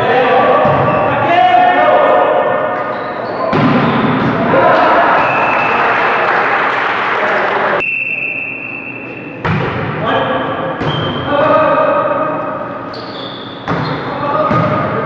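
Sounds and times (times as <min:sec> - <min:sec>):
players shouting: 0:00.0 - 0:07.8
volleyball strikes: 0:03.5 - 0:04.6, 0:09.4 - 0:10.0.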